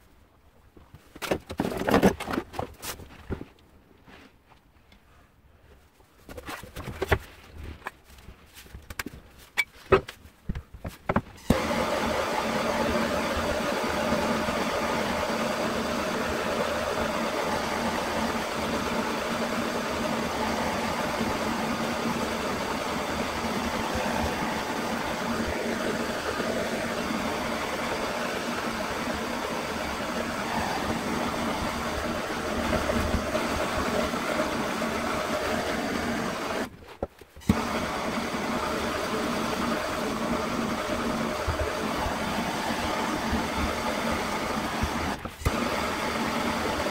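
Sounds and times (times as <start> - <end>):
blowtorch hissing: 11.4 - 36.7, 37.4 - 46.9.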